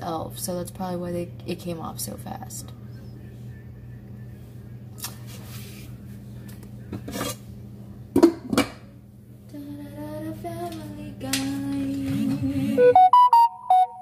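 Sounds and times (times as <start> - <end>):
steady low hum: 0.0 - 13.7
tune of stepped notes: 12.8 - 14.0.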